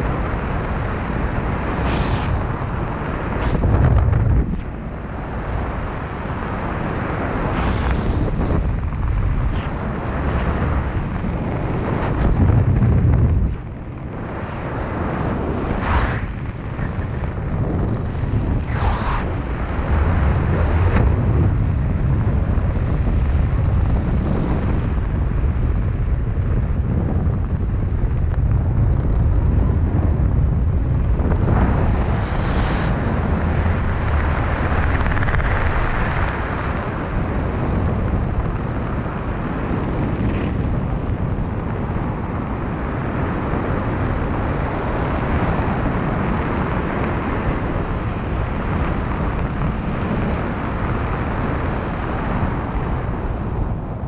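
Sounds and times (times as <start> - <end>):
wind rushing over microphone: 0.0 - 54.0.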